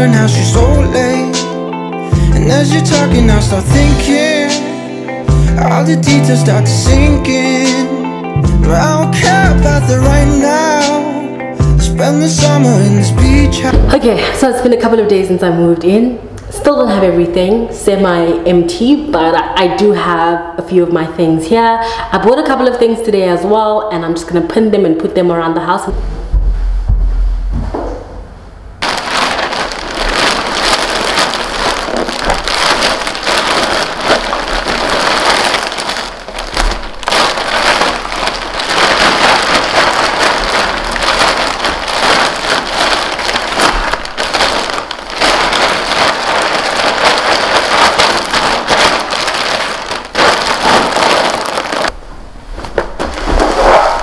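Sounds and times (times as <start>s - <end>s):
plastic bags crinkling: 28.8s - 52.0s.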